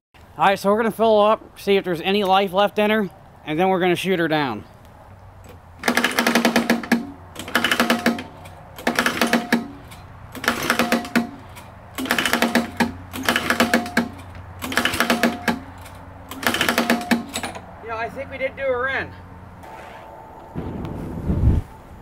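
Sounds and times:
lawn mower pull-start cranking: 5.4s - 17.6s.

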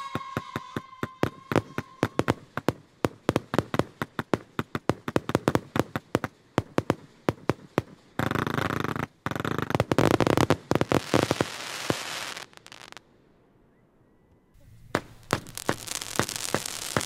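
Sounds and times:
firework whistle: 0.0s - 4.0s, 14.8s - 17.0s
firework cracking reports: 0.0s - 13.0s, 14.8s - 17.0s.

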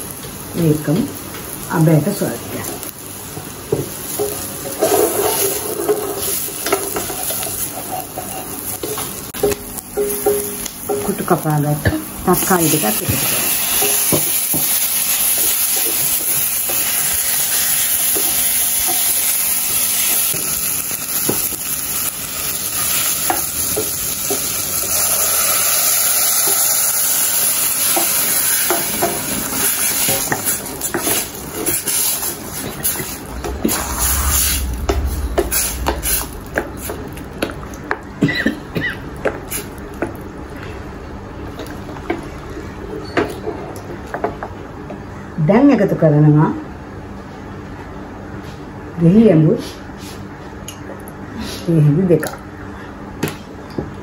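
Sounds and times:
tomatoes sizzling in hot oil: 0.0s - 38.0s
spatula scraping and knocking pan: 3.7s - 20.5s, 27.9s - 37.6s.

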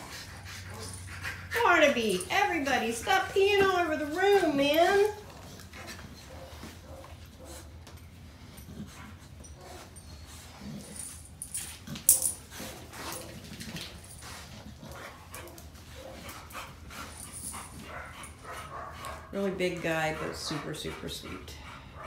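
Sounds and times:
dogs scuffling on hard floor: 0.2s - 19.2s
dog vocal sounds: 8.4s - 22.0s.

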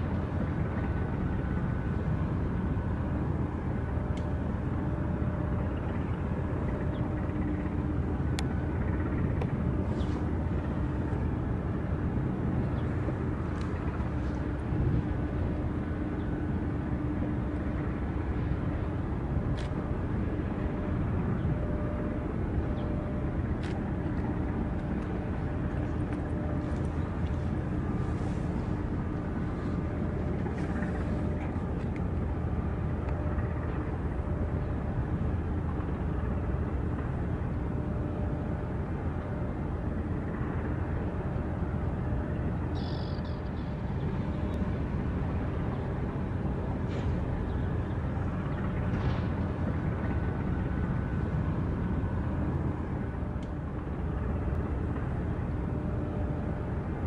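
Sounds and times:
constant hum: 0.0s - 57.0s
low harbour rumble: 0.0s - 57.0s.

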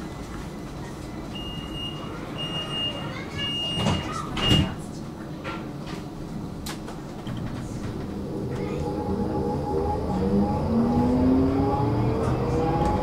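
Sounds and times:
tram low hum: 0.0s - 13.0s
high warning beeps: 1.4s - 4.7s.

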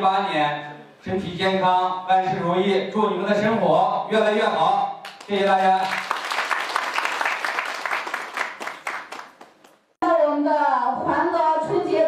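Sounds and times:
audience applauding: 5.0s - 9.8s
woman speaking over microphone: 10.0s - 12.0s.

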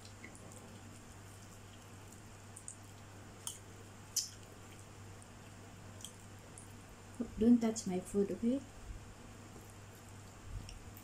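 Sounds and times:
low steady hum: 0.0s - 11.0s
wet mouth smacks and clicks: 3.4s - 4.5s.

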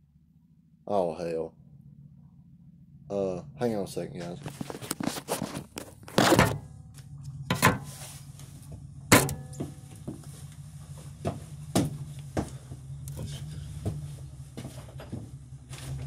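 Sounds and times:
steady low hum: 0.0s - 16.0s
knocks and thumps: 4.4s - 6.7s, 7.5s - 8.0s, 8.6s - 10.2s, 11.2s - 12.9s, 13.8s - 15.4s.

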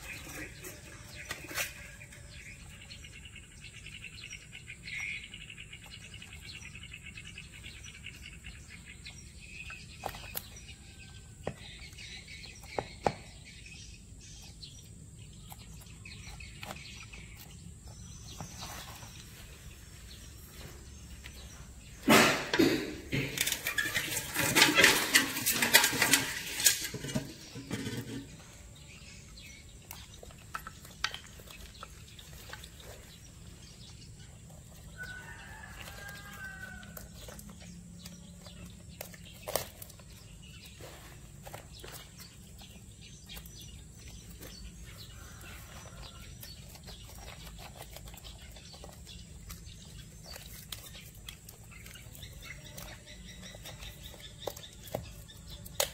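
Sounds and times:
crabs scraping on wooden board: 0.0s - 3.2s, 20.8s - 55.9s
birds chirping: 0.0s - 55.9s.

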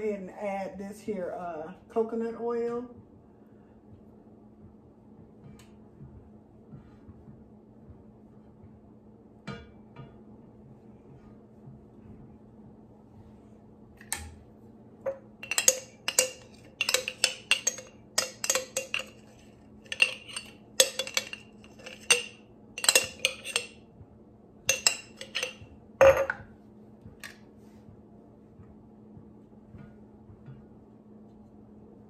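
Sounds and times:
spatula clinking on glass jar: 15.1s - 23.8s, 24.7s - 26.3s.

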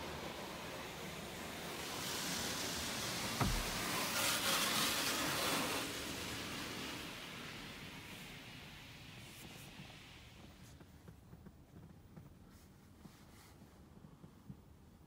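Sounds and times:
car wash spray hissing: 0.0s - 10.6s
thump: 3.4s - 4.0s.

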